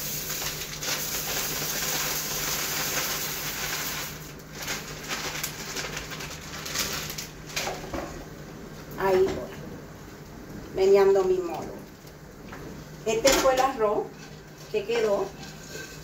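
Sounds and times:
rice pouring into a pot: 0.0 - 7.2.

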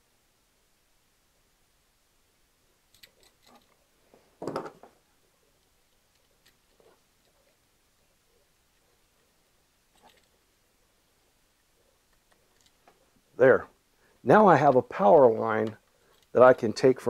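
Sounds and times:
wire handling clicks: 2.9 - 3.8.

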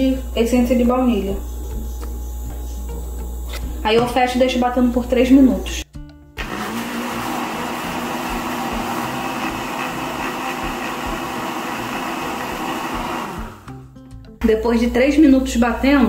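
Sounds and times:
blender running: 0.0 - 1.5, 6.4 - 13.8.

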